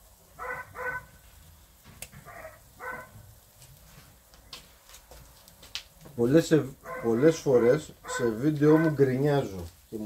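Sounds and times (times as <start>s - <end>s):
dog barking: 0.4s - 1.1s, 2.2s - 3.2s, 6.8s - 9.0s.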